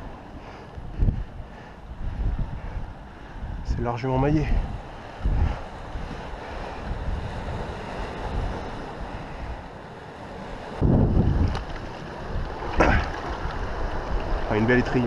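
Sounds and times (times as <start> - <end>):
wind buffeting microphone: 0.0 - 15.0
sea washing on rocks: 10.3 - 15.0.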